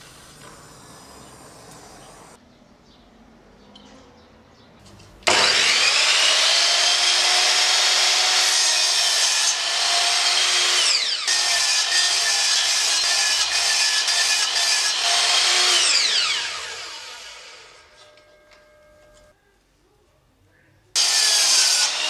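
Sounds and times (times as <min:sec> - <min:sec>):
mitre saw cutting wood: 0:05.2 - 0:18.2, 0:21.0 - 0:22.0.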